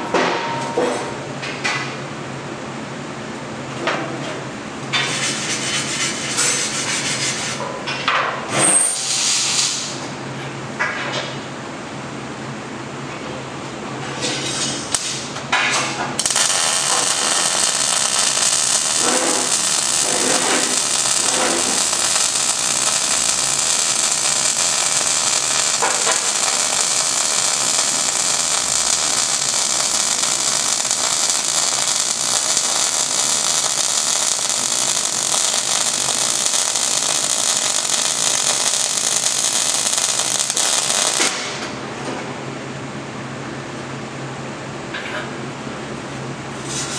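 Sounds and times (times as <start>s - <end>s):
welding arc crackling: 16.2s - 41.8s.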